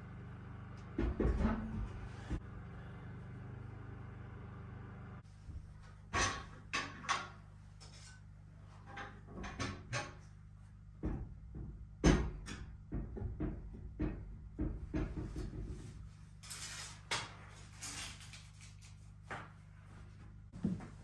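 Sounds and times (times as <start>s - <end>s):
iron stove knocking on bricks: 11.0s - 15.8s.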